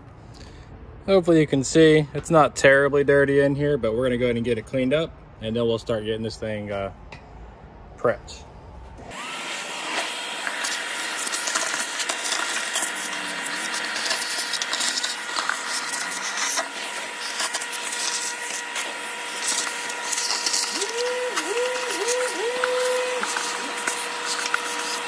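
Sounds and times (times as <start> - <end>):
vacuum cleaner whining: 8.9 - 25.0
hose sucking debris: 9.1 - 25.0.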